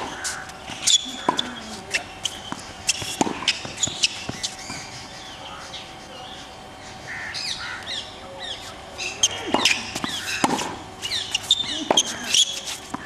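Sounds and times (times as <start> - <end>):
racket striking ball: 0.0 - 4.8, 9.2 - 13.0
tennis balls bouncing: 0.0 - 5.2, 9.0 - 13.0.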